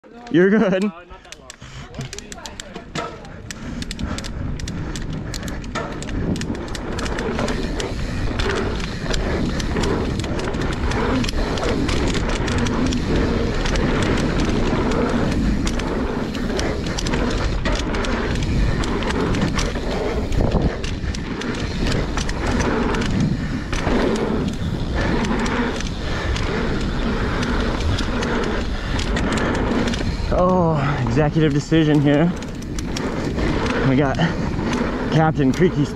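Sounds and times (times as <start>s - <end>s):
bike knocks and rattles: 1.4s - 35.9s
bike tyres rumbling on dirt: 1.6s - 35.9s.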